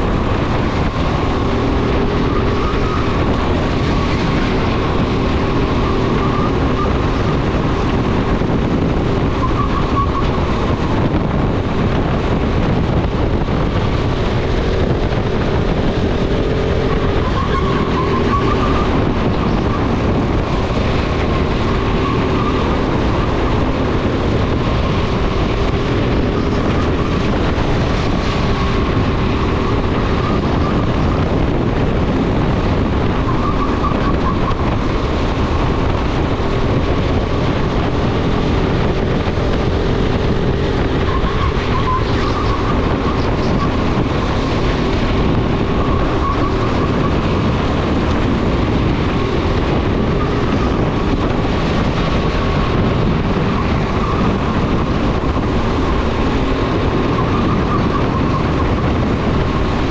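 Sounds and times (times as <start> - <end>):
go-kart motor racing: 0.0 - 59.9
wind buffeting microphone: 0.0 - 59.9.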